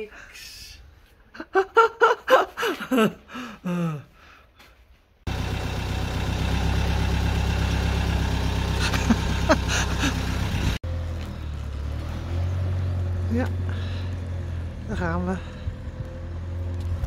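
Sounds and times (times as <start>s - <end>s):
motorhome engine idling: 5.3s - 11.7s.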